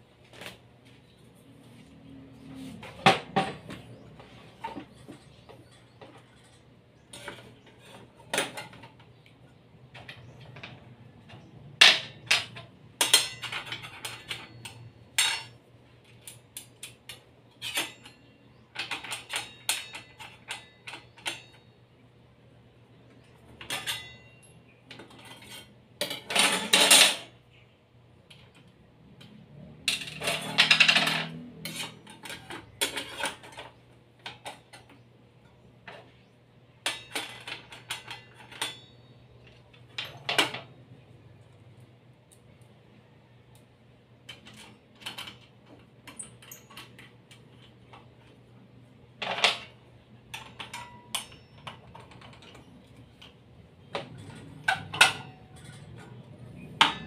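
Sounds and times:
metal tools clinking: 10.0s - 21.8s, 23.2s - 27.4s, 29.3s - 35.0s, 36.8s - 40.8s, 49.2s - 57.0s
metal rattling scrapes: 29.8s - 33.8s.

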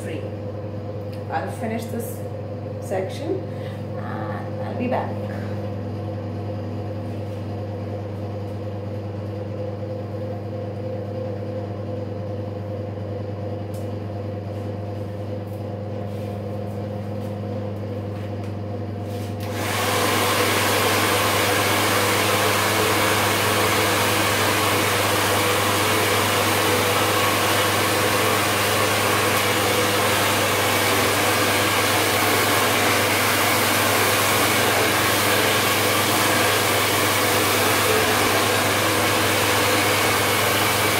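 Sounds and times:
hair dryer blowing: 18.2s - 40.9s.

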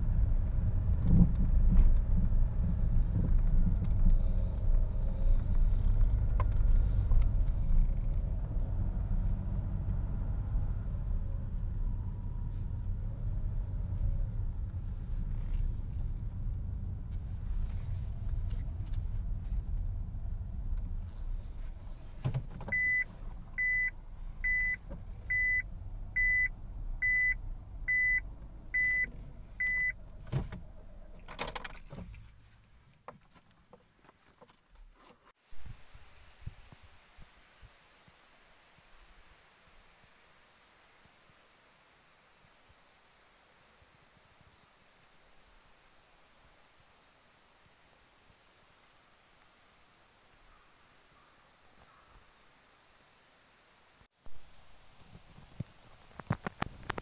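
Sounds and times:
car driving rumble: 0.0s - 35.0s.

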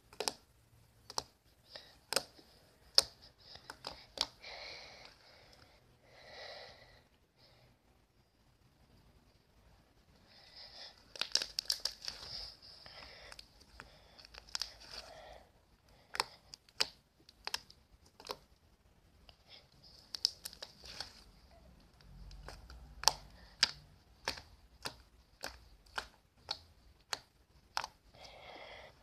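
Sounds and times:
slime popping and clicking: 0.0s - 0.4s, 22.3s - 28.1s
slime squishing: 0.0s - 5.6s, 10.3s - 29.0s.

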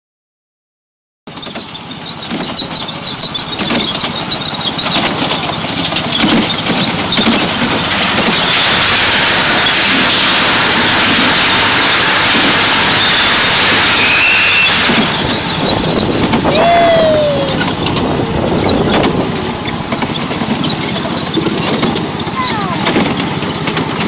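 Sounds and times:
miniature train wheels clicking: 1.3s - 16.6s
thin high wheel squeal: 1.3s - 24.0s
train rushing through tunnel: 5.3s - 21.4s.

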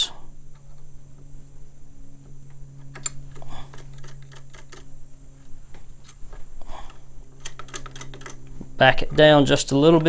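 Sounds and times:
wrench clicking on nut: 7.4s - 8.4s.

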